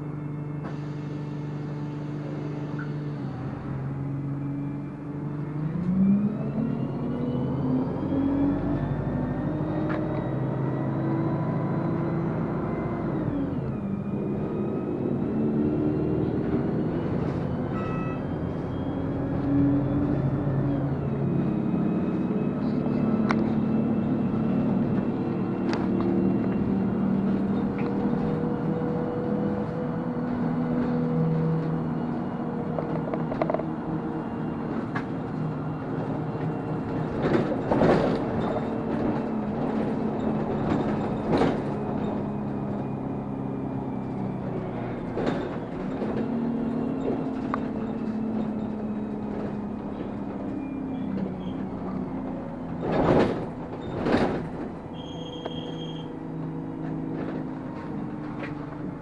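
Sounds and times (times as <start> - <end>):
bus engine running: 0.0 - 59.0
knocks and rattles from bus body: 23.3 - 59.0.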